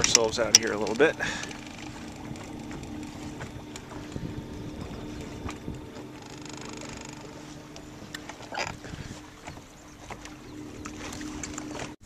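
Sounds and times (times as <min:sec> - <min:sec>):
electric trolling motor humming: 0:00.0 - 0:12.0
thin high whine: 0:00.0 - 0:12.0.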